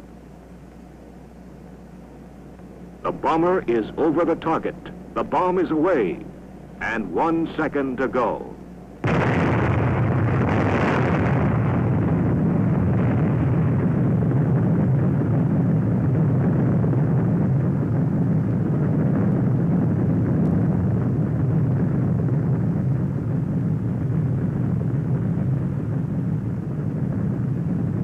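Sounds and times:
explosion rumble: 9.0s - 28.0s.

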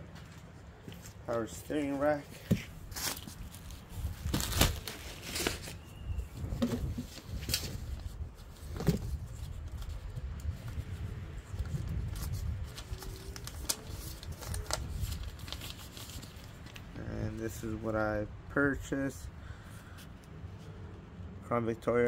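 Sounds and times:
plastic bag and paper rustling: 1.3s - 16.9s.

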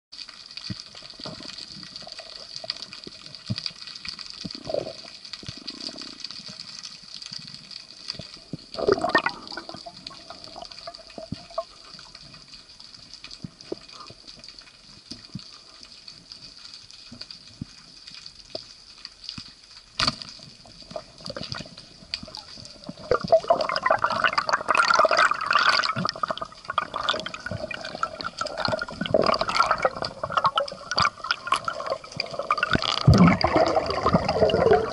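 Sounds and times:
underwater crackling and bubbling: 0.2s - 34.9s
fish struggling rattling: 20.0s - 34.9s.

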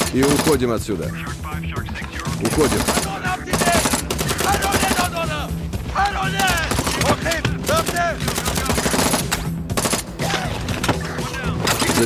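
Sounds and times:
rapid automatic rifle fire: 0.0s - 0.7s, 2.5s - 5.1s, 6.4s - 10.2s, 11.7s - 12.0s
music playing: 0.0s - 12.0s.

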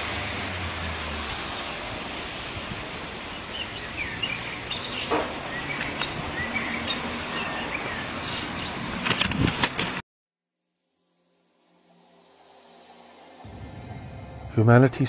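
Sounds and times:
small birds chirping: 3.3s - 8.8s
background hiss: 10.8s - 15.0s.

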